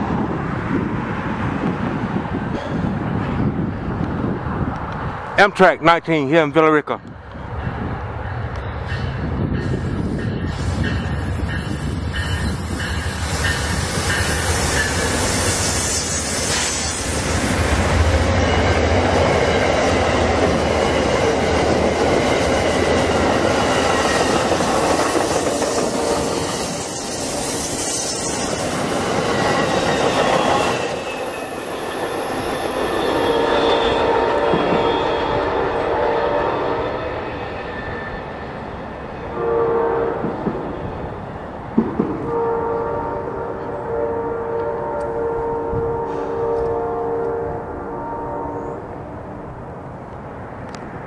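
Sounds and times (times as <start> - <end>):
train wheels rumbling on rail: 0.0 - 5.4, 6.9 - 51.0
high wheel squeal: 8.8 - 21.3, 22.8 - 35.6, 36.9 - 38.9.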